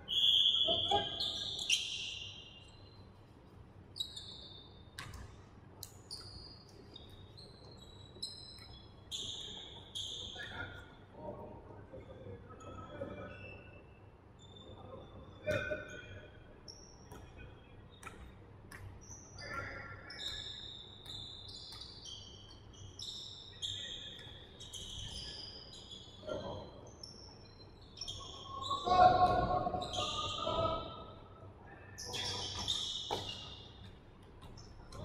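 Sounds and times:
sneakers squeaking on floor: 0:00.0 - 0:03.1, 0:03.9 - 0:10.9, 0:16.7 - 0:31.0, 0:32.0 - 0:35.0.

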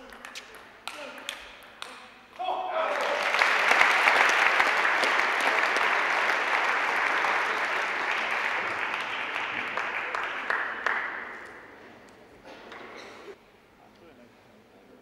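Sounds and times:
audience applauding: 0:02.8 - 0:11.7.

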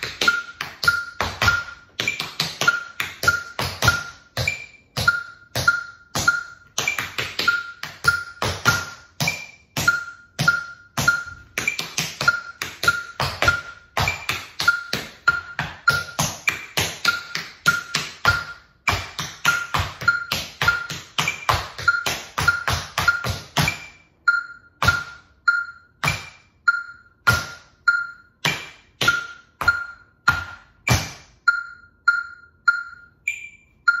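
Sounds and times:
tap shoes on wooden floor: 0:00.0 - 0:23.8, 0:28.4 - 0:31.3
metronome beeping: 0:00.0 - 0:34.0.

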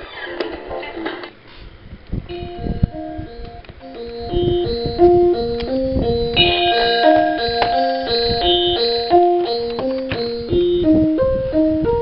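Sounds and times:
clock radio chimes: 0:02.3 - 0:10.9.

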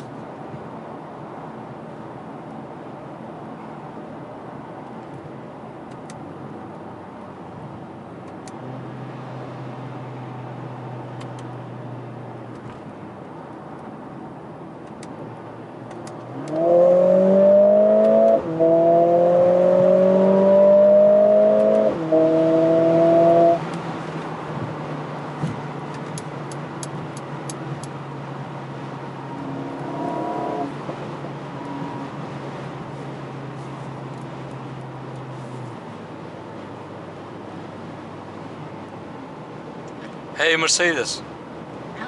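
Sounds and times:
car engine accelerating: 0:16.0 - 0:39.1.

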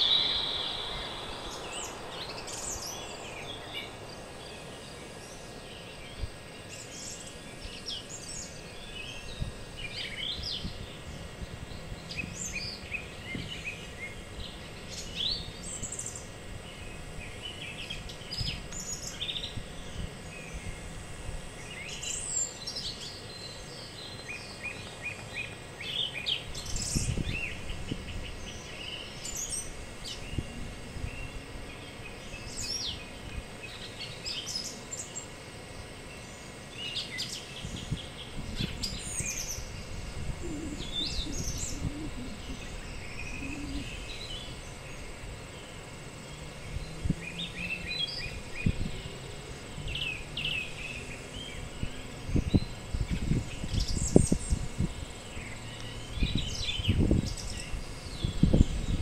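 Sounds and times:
wind buffeting microphone: 0:00.0 - 0:05.2, 0:09.2 - 0:12.0, 0:26.6 - 0:28.4, 0:37.6 - 0:44.4, 0:51.7 - 0:55.3, 0:56.2 - 0:59.0
songbirds chirping and singing: 0:00.0 - 0:20.9, 0:21.5 - 0:59.0
faint insect drone: 0:00.0 - 0:59.0.

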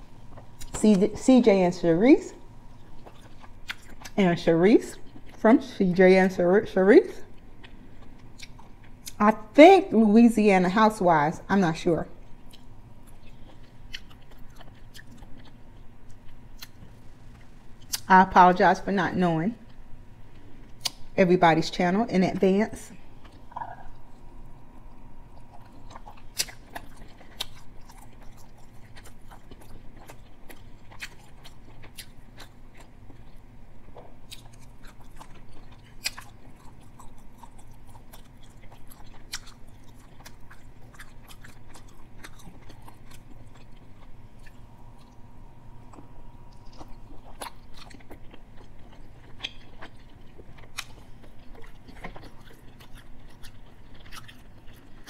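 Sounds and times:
person chewing food: 0:02.4 - 0:04.2, 0:04.9 - 0:05.4, 0:07.2 - 0:09.2, 0:12.2 - 0:18.1, 0:23.1 - 0:55.0.

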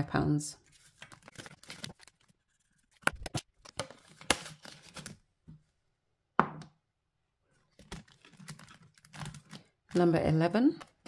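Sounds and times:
paper rustling: 0:00.6 - 0:05.2.

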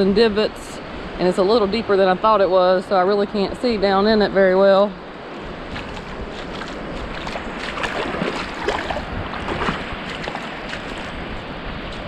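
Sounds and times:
distant surf: 0:00.0 - 0:12.0
wind noise on microphone: 0:00.0 - 0:12.0.

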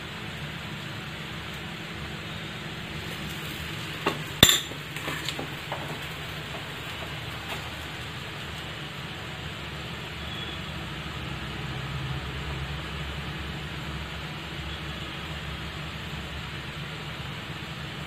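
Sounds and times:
steel spoon clinking on iron pan: 0:04.4 - 0:04.8.

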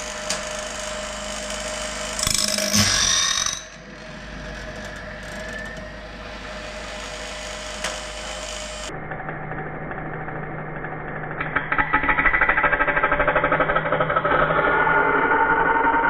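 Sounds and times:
high-pitched grinding: 0:00.0 - 0:08.9
steady motor hum: 0:00.0 - 0:16.0.

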